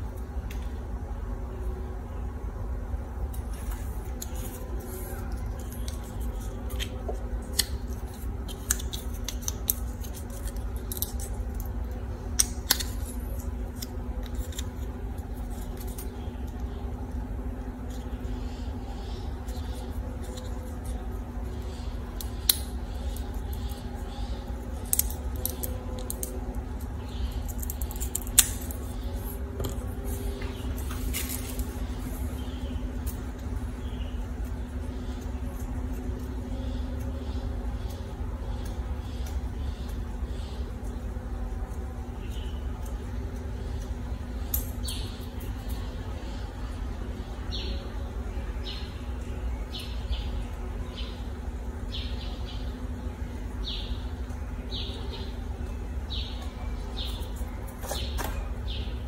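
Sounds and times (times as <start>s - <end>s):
low hum: 0.0s - 59.0s
scissors snipping plastic straw: 5.5s - 11.7s, 12.3s - 16.6s, 27.2s - 29.0s.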